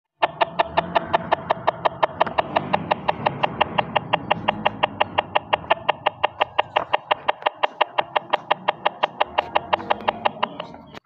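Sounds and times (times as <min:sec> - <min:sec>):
fast clicking beat: 0:00.2 - 0:11.0
low hum: 0:00.2 - 0:11.0.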